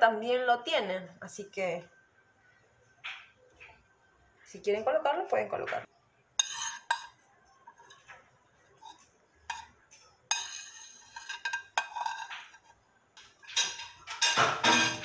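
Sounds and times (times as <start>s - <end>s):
metallic dishes clinking: 6.4s - 8.1s, 8.8s - 15.0s.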